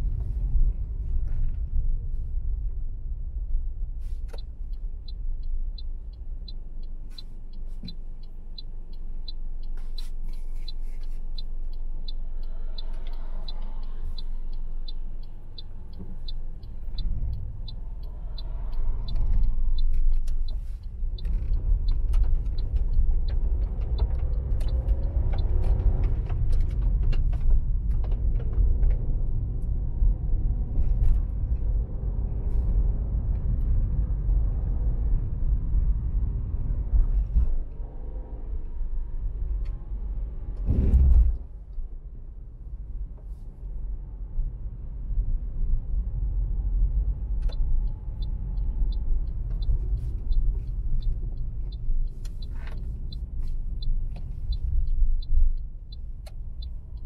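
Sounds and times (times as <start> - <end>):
car road and engine rumble: 0.0 - 57.0
turn signal ticking: 0.0 - 57.0.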